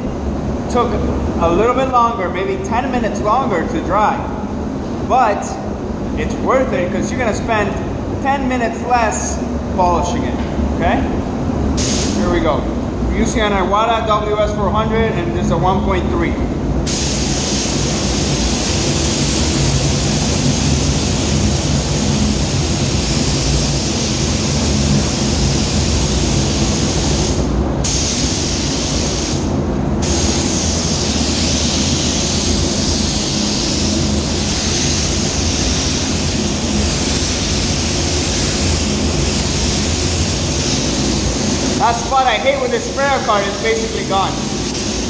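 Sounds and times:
low rumble of booth air: 0.0s - 45.0s
spray gun hissing: 11.8s - 12.2s, 16.9s - 45.0s.

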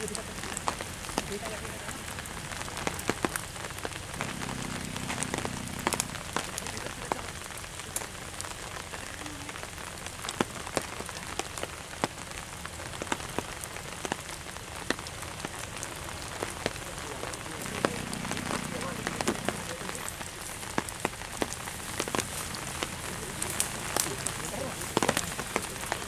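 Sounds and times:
rain pattering: 0.0s - 26.0s
sharp raindrop hits: 0.0s - 26.0s
low hum: 4.1s - 6.6s.

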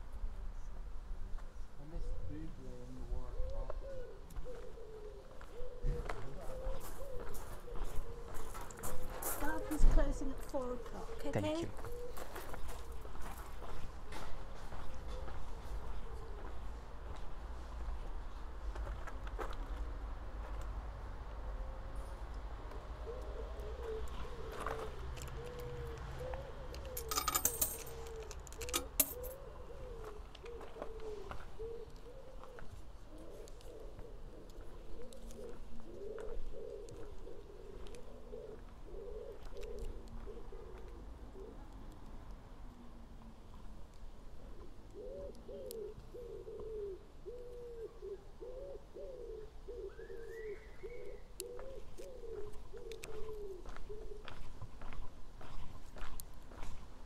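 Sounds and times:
pigeon cooing: 1.9s - 13.1s, 22.9s - 41.9s, 44.4s - 55.0s
metallic jingle: 27.0s - 27.9s, 28.7s - 29.3s
faint high bird call: 49.7s - 54.2s.

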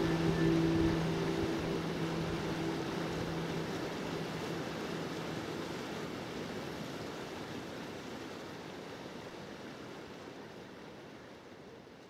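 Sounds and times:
river water rushing: 0.0s - 11.5s.

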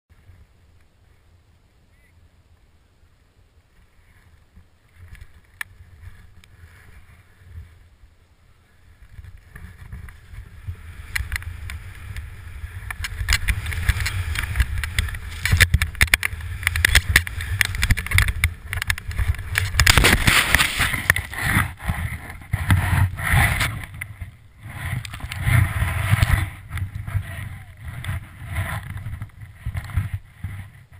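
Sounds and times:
wind rushing over camera: 0.1s - 30.9s
skis running through powder snow: 8.5s - 30.9s
skier tumbling in snow: 8.6s - 30.8s.

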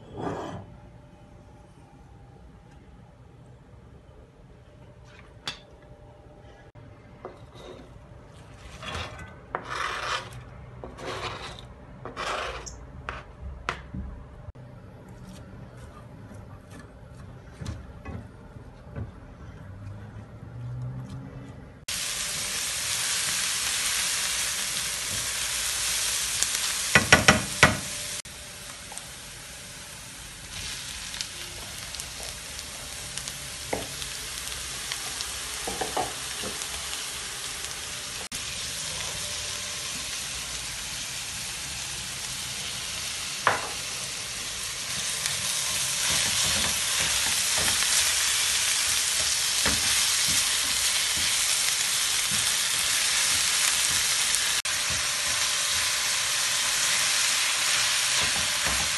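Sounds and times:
wooden spoon scraping a pan: 7.3s - 13.3s
frying sizzle: 21.9s - 58.9s.

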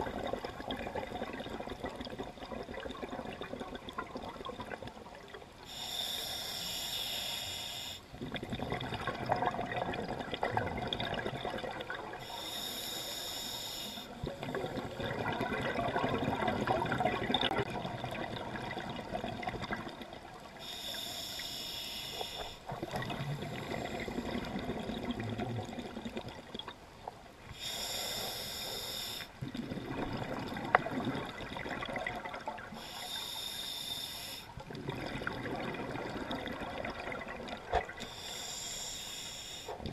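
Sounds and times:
regulator hissing inhalations: 5.7s - 8.1s, 12.2s - 14.2s, 20.6s - 22.7s, 27.6s - 29.3s, 32.8s - 34.5s, 38.1s - 39.8s
exhaled bubbles rushing: 8.2s - 12.2s, 14.2s - 20.6s, 22.7s - 26.6s, 29.4s - 32.7s, 34.6s - 38.0s.

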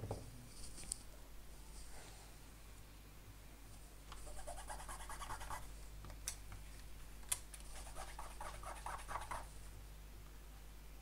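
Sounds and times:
scratchy rubbing on thin metal: 4.2s - 5.7s, 7.7s - 9.5s.

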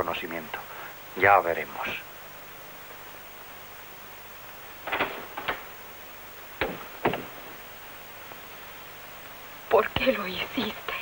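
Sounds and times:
steady hiss: 0.0s - 11.0s
door knocks and clacks: 4.8s - 5.8s, 6.6s - 7.6s.

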